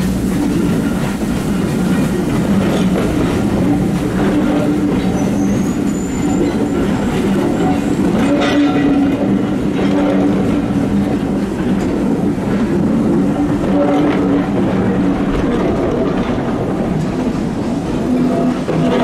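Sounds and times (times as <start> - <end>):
low train rumble: 0.0 - 19.0
train wheels clicking over rail joints: 0.0 - 19.0
high wheel squeal: 3.7 - 8.8.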